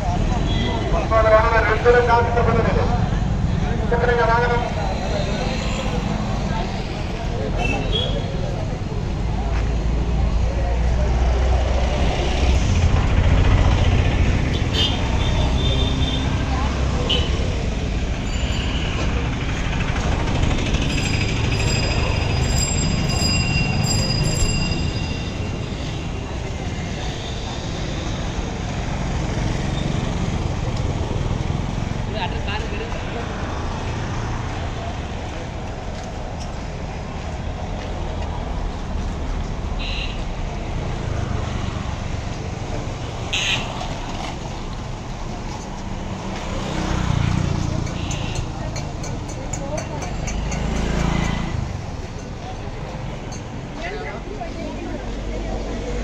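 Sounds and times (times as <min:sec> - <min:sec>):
motorbikes and cars passing: 0:00.0 - 0:56.0
traffic rumble: 0:00.0 - 0:56.0
people talking: 0:15.4 - 0:17.7, 0:32.0 - 0:33.6, 0:47.7 - 0:50.5, 0:53.8 - 0:56.0.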